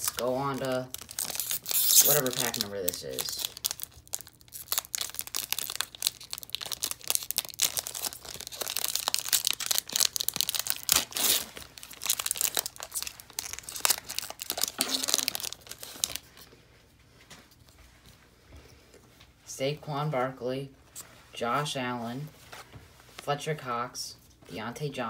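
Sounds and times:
foil wrapper tearing and crinkling: 0.0s - 16.4s.

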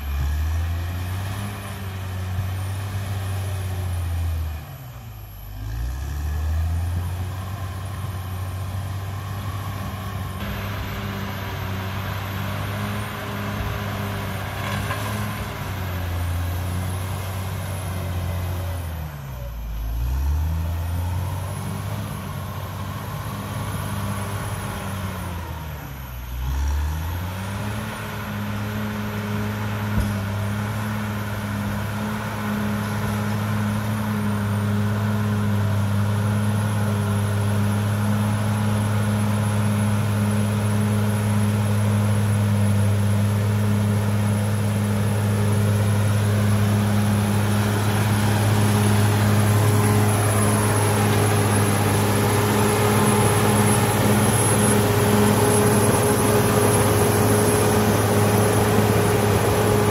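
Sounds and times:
bulldozer diesel engine under load: 0.0s - 59.9s.

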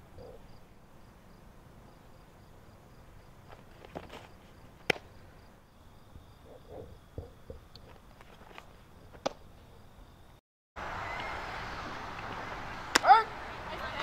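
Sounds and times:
crickets chirping: 0.0s - 10.4s.

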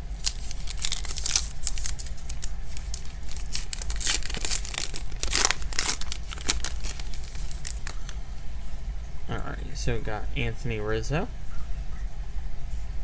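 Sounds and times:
paper wrapper tearing and crinkling: 0.0s - 8.1s.

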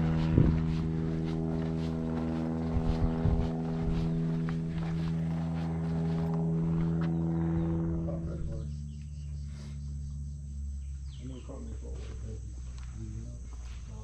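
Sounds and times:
engine droning: 0.0s - 14.0s.

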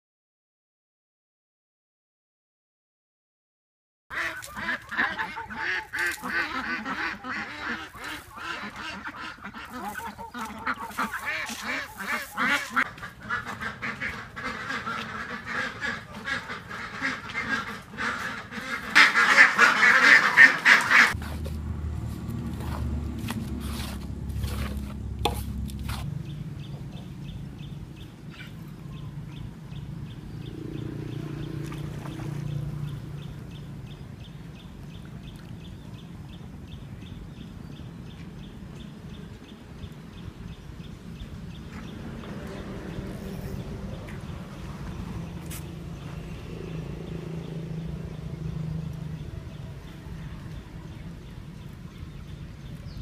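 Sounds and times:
ducks quacking: 4.1s - 21.6s
low hum: 21.1s - 35.2s.

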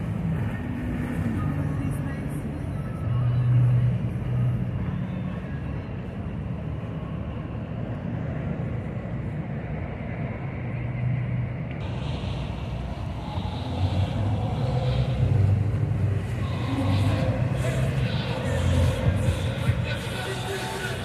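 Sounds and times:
motorboat engines rumbling: 11.8s - 21.0s.

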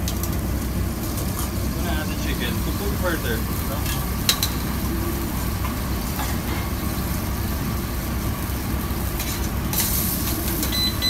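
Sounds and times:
kitchen burners rumbling: 0.0s - 11.0s.

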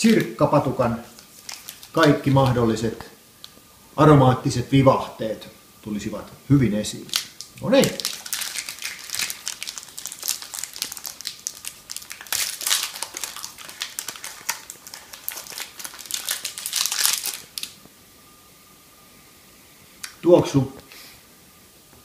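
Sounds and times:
wrapper crinkling: 1.0s - 2.8s, 7.0s - 17.8s.

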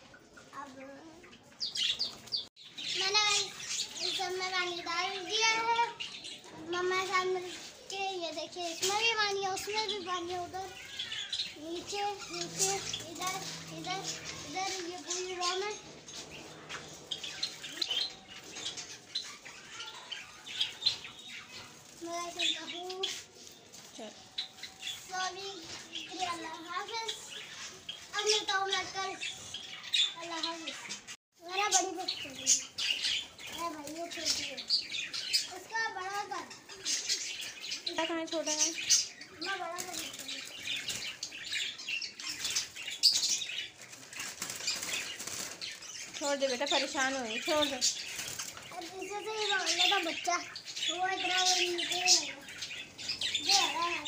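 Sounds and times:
cage birds chirping: 0.0s - 54.0s
birds flapping wings against wire: 39.5s - 41.2s, 42.3s - 50.4s.

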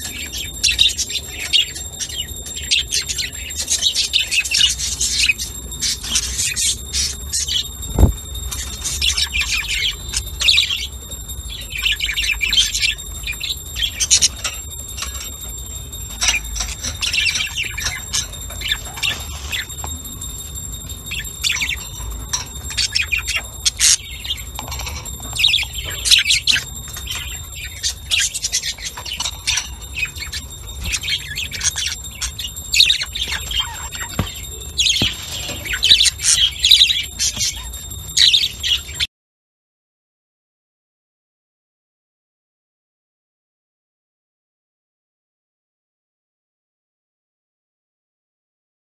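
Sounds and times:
budgerigars chirping and chattering: 0.0s - 20.0s, 20.9s - 39.1s
faint high-pitched tone: 0.0s - 39.1s.

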